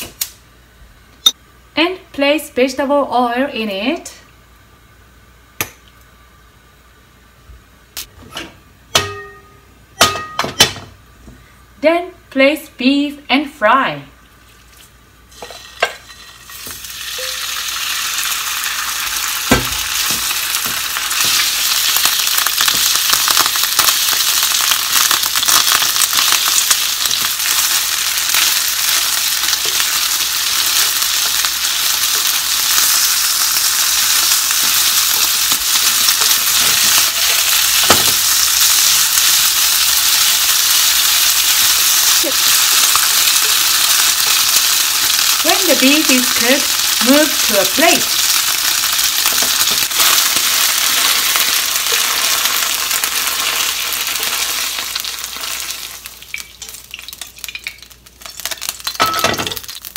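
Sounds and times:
meat sizzling in oil: 14.6 - 59.9.

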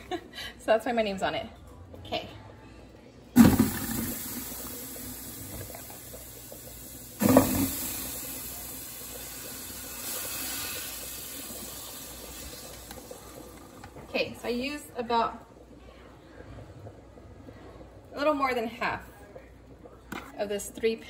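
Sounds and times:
butter sizzling in a pot: 3.4 - 15.3.

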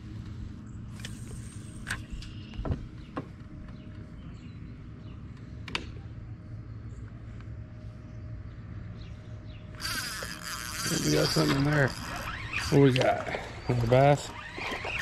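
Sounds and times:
low hum: 0.0 - 15.0
fishing reel whine: 0.9 - 2.4, 9.7 - 15.0
fishing reel clicks: 9.8 - 13.1.

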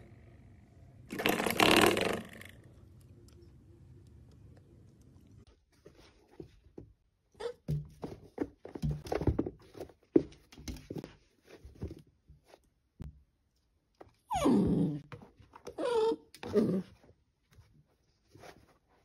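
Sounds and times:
puppy whining: 14.3 - 15.1, 15.7 - 17.0.

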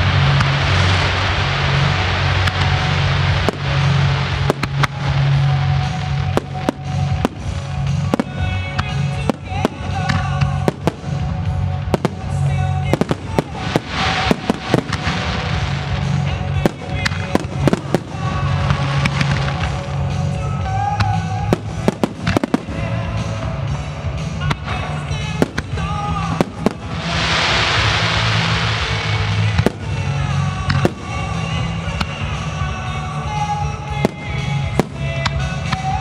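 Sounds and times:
fireworks bursting: 0.0 - 36.0
music: 0.0 - 36.0.

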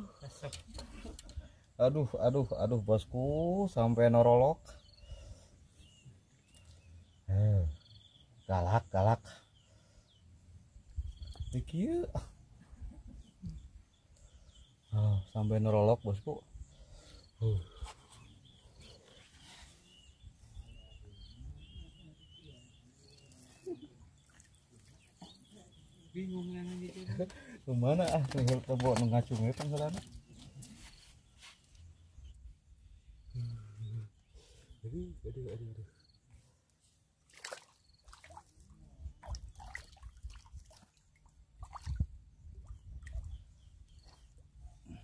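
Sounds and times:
small bird chirping: 9.4 - 12.4, 41.6 - 45.0
water splashing and dripping: 37.3 - 43.4.

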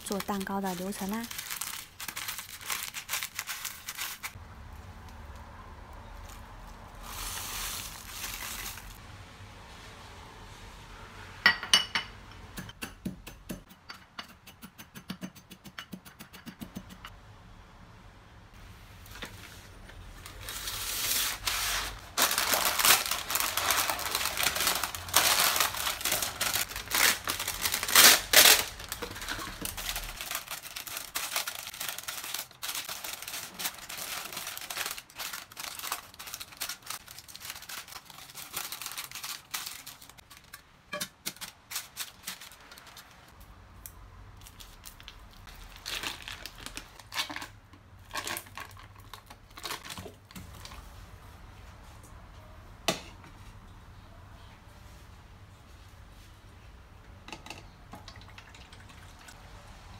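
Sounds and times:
parchment paper tearing and crinkling: 0.0 - 4.4, 20.3 - 40.6
plastic bag crinkling: 0.0 - 4.4, 6.3 - 9.0, 20.1 - 40.6, 41.3 - 43.3, 44.4 - 50.8.

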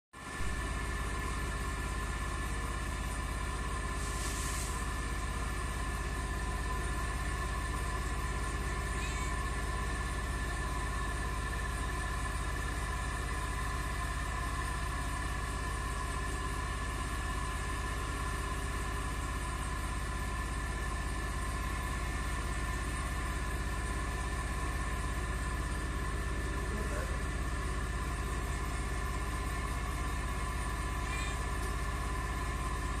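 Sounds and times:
motor hum: 0.2 - 33.0
brief hiss: 4.0 - 4.8.

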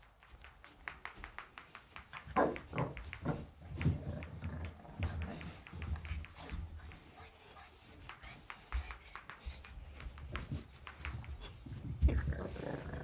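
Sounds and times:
dog paws pattering on floor: 0.0 - 13.0
dull thumps of dogs hopping: 0.0 - 13.0.

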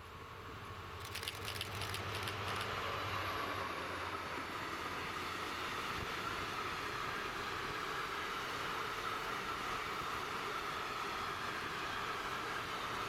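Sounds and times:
train rolling past: 0.6 - 9.3
rail clicks: 1.0 - 3.0.

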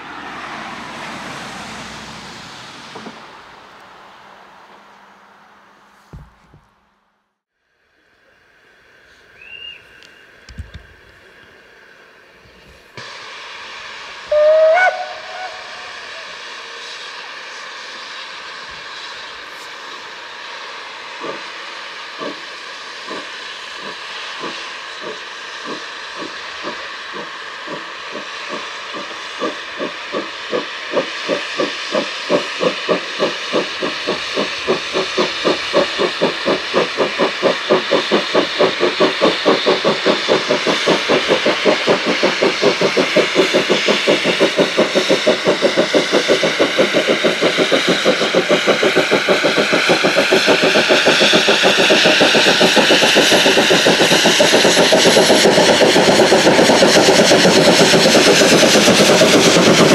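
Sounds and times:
steady steam hiss: 7.7 - 59.9
steam locomotive exhaust beats: 7.9 - 59.9
steam locomotive whistle: 9.3 - 10.4, 13.0 - 17.8.

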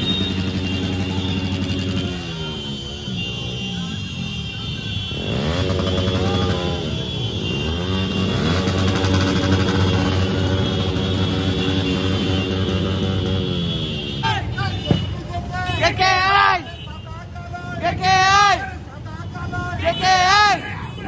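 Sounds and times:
motorcycle engines running: 0.0 - 14.2
motorcycle engines revving: 0.0 - 16.8.

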